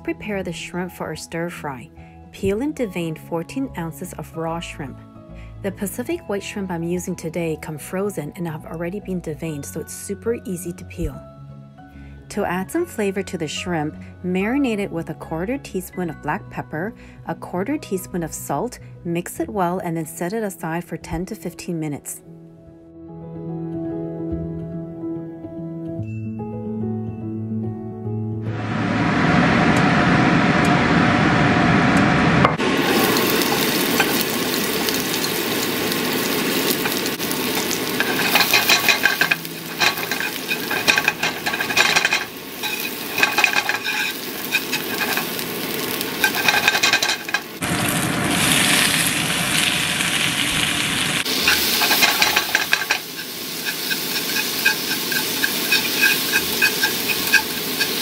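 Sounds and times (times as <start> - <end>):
crackling and clicks: 32.0 - 47.6
food sizzling in hot oil: 32.6 - 58.0
chopsticks stirring in pan: 32.8 - 47.6, 51.2 - 58.0.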